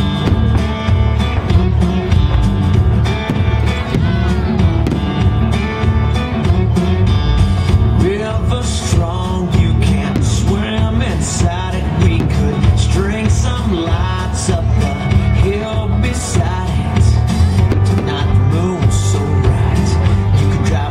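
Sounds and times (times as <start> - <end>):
country music with guitar: 0.0 - 20.9
person singing: 7.7 - 20.9.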